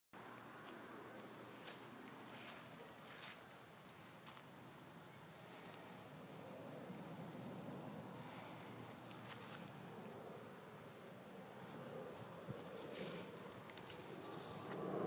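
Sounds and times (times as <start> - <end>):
faint outdoor background: 0.2 - 15.0
leaves rustling against phone: 8.9 - 9.9, 12.1 - 15.0.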